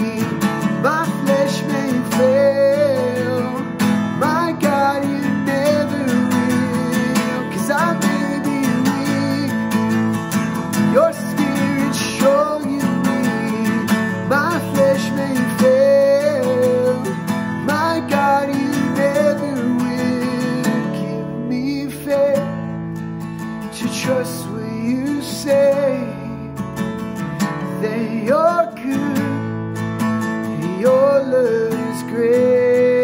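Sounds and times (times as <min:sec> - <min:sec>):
man singing: 0:00.0 - 0:22.7, 0:23.6 - 0:26.7, 0:27.4 - 0:29.6, 0:30.4 - 0:33.0
acoustic guitar strumming: 0:00.0 - 0:33.0.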